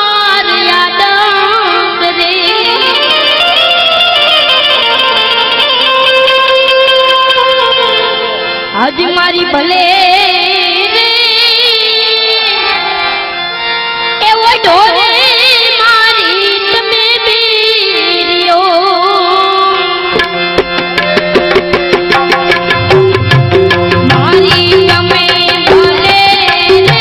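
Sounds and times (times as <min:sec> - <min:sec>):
melodic instrumental accompaniment: 0:02.4 - 0:10.0, 0:20.0 - 0:27.0
fast drum rhythm: 0:20.2 - 0:27.0
boy singing folk song: 0:24.1 - 0:27.0.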